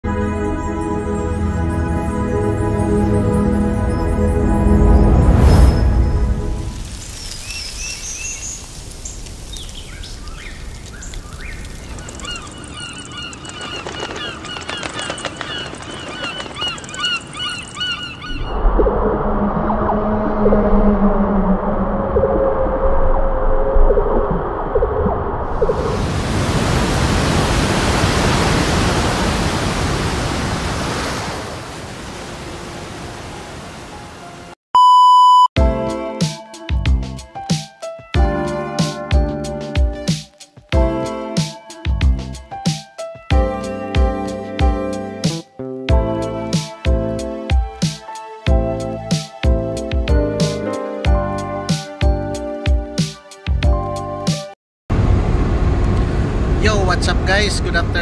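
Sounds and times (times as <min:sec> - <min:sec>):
gulls calling: 0:09.8 - 0:18.8
electronic beep: 0:34.8 - 0:35.6
electronic music with a beat: 0:35.6 - 0:54.5.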